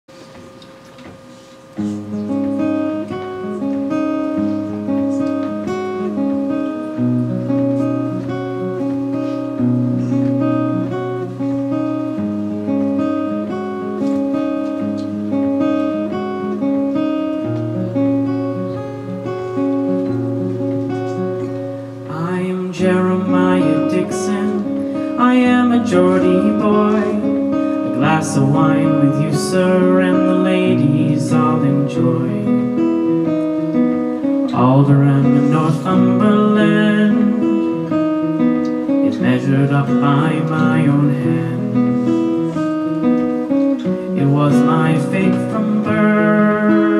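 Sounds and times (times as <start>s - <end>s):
acoustic guitar and piano: 0.1s - 46.9s
man singing: 22.1s - 32.8s, 34.5s - 38.0s, 39.0s - 42.3s, 44.1s - 46.9s.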